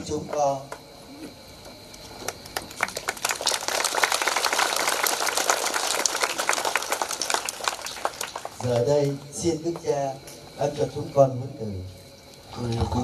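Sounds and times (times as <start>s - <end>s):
crowd applauding: 2.2s - 9.2s.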